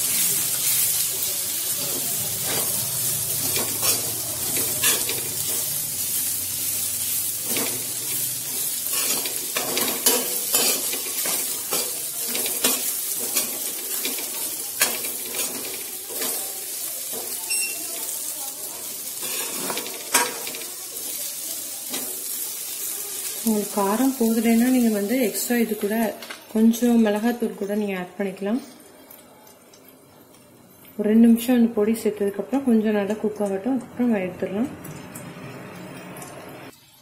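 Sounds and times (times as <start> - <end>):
vegetables sizzling in a pan: 0.0 - 37.0
spatula scraping a pan: 3.4 - 5.7, 7.4 - 16.4, 19.2 - 21.2.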